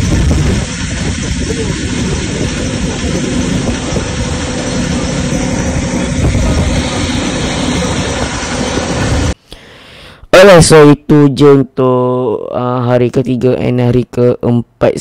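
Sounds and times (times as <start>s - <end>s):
motorboat engine running: 0.0s - 9.4s
wind rushing: 0.0s - 9.4s.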